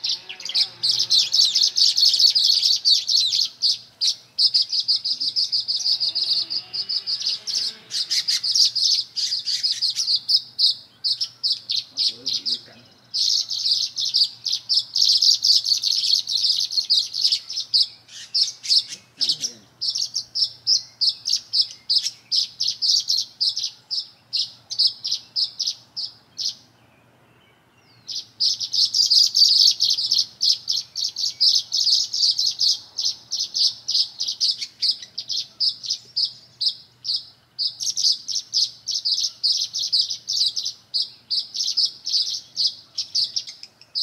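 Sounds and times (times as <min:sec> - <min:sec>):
songbirds chirping: 0:00.0 - 0:44.0.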